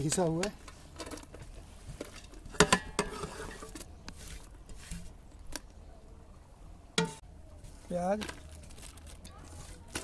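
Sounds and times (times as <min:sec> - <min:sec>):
light taps and scrapes: 0:00.0 - 0:05.7
metal plate clanking on pot: 0:02.5 - 0:03.7.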